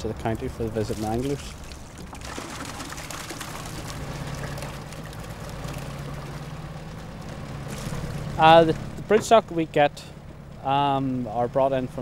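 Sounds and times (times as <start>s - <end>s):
water splashing and dripping: 0.0s - 9.5s
steady low hum: 3.2s - 12.0s.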